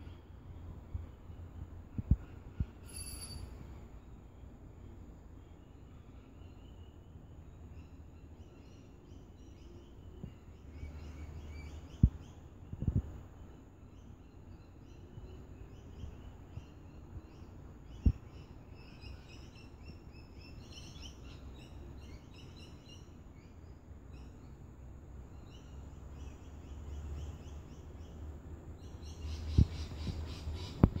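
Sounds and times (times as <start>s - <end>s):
birds chirping: 28.8s - 31.0s.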